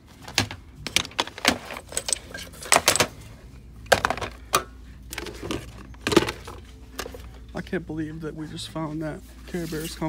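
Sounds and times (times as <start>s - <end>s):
plastic toys clattering: 0.2s - 3.3s, 3.9s - 7.2s.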